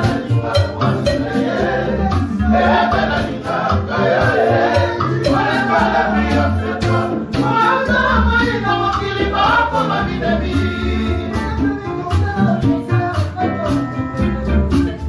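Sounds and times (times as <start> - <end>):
men singing together: 0.0 - 13.9
acoustic guitar: 0.0 - 15.0.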